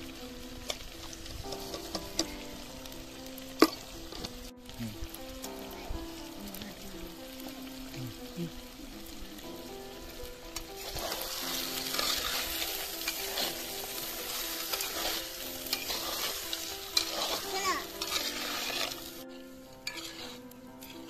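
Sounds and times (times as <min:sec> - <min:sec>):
curry sizzling in a pot: 0:00.0 - 0:21.0
metal spatula scraping pot: 0:10.6 - 0:21.0.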